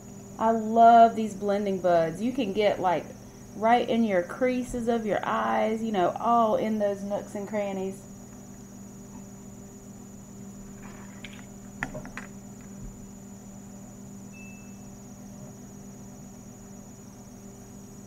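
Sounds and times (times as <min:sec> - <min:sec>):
electrical hum: 0:00.0 - 0:18.0.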